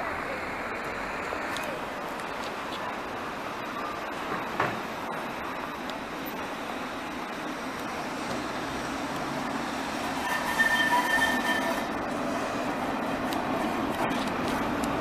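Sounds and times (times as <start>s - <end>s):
tram rolling rumble: 0.0s - 15.0s
steady high tone: 10.2s - 12.1s.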